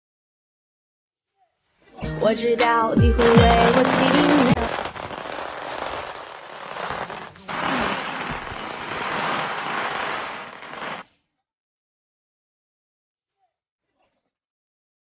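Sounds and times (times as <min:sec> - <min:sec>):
firecrackers crackling: 0:03.1 - 0:11.0.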